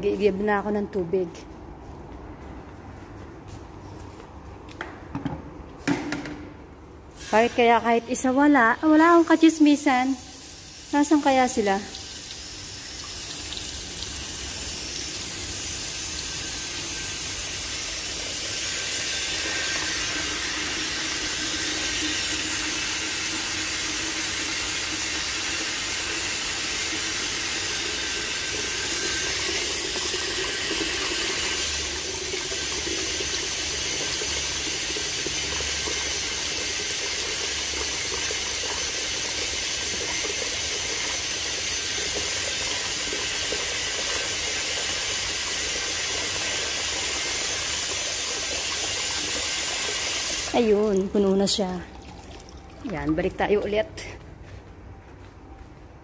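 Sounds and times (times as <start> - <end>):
tap water filling a container: 11.8 - 53.4.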